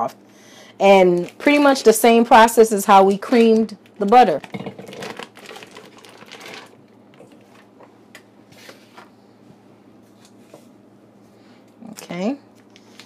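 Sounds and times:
foil wrapper crinkling: 3.6s - 7.7s.

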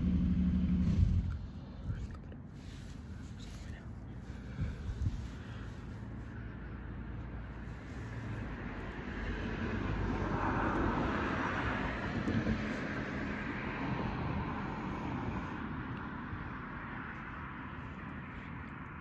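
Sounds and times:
vehicle passing: 2.6s - 19.0s.

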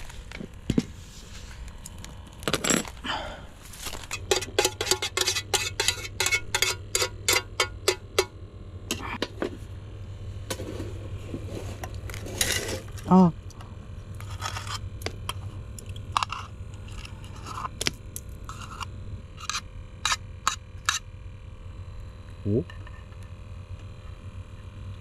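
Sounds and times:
low steady hum: 0.0s - 25.0s
metal mess tin clinking: 4.1s - 8.3s.

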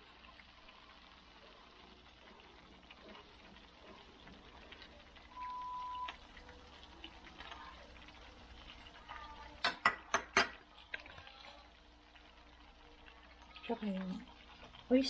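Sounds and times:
electronic beep: 5.3s - 6.2s.

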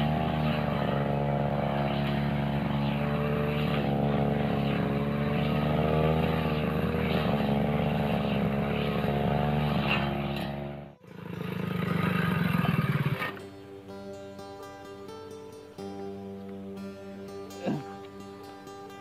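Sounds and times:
brush cutter engine running: 0.0s - 13.5s
rough engine sound: 0.0s - 19.0s.

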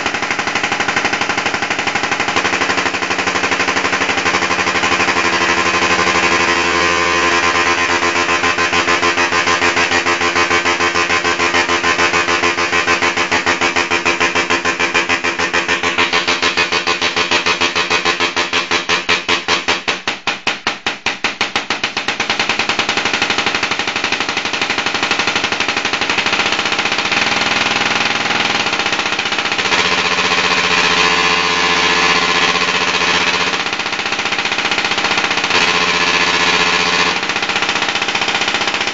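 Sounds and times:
tesla coil arcs buzzing: 4.2s - 17.8s, 29.6s - 33.6s, 35.5s - 37.2s.

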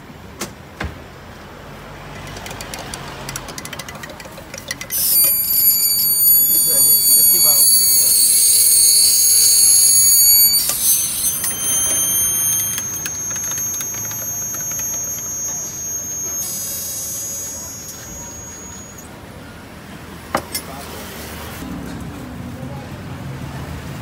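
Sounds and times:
high-pitched whine: 4.9s - 19.1s.

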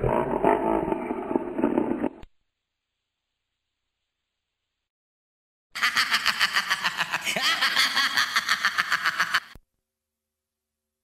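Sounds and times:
evil cackling laugh: 5.8s - 9.6s.

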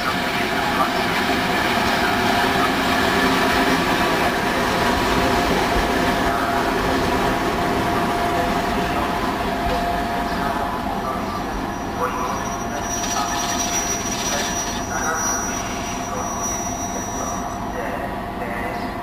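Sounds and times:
diesel locomotive passing: 0.0s - 19.0s.

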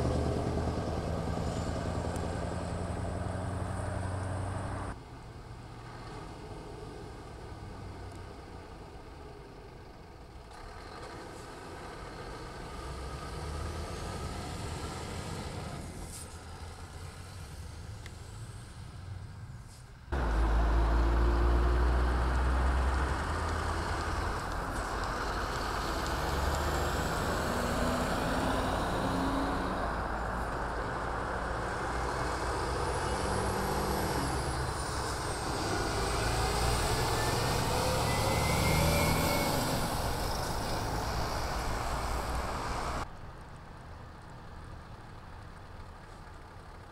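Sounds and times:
heavy diesel trucks driving past: 0.0s - 46.9s
tyres rolling on road: 0.0s - 46.9s
faint high whistle: 38.0s - 39.6s.

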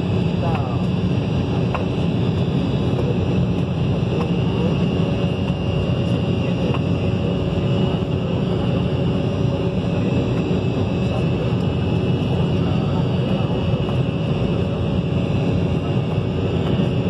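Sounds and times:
jet engines deep rumble: 0.0s - 17.0s.

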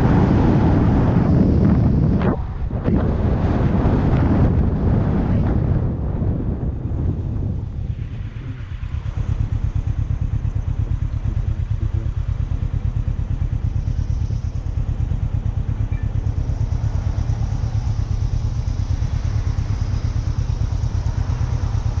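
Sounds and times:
motorcycle engine idling: 6.6s - 22.0s.

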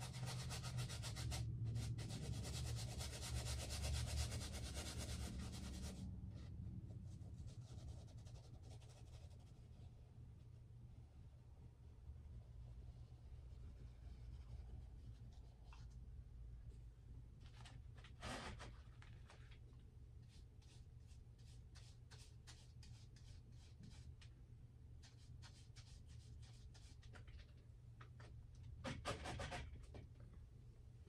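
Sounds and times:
paintbrush scratching on canvas: 0.0s - 6.0s, 7.1s - 9.9s, 20.2s - 24.1s.

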